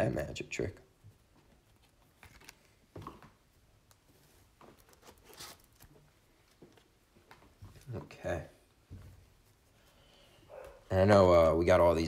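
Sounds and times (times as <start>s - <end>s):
cards in plastic sleeves rustling: 1.2s - 3.0s, 3.9s - 6.6s.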